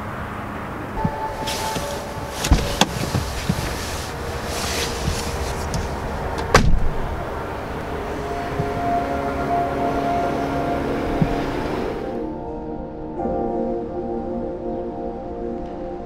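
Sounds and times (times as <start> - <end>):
car door latch clicks: 1.0 - 4.0, 5.0 - 7.1, 8.5 - 9.0
coat rustling: 1.0 - 6.6
car door thud: 1.0 - 7.1.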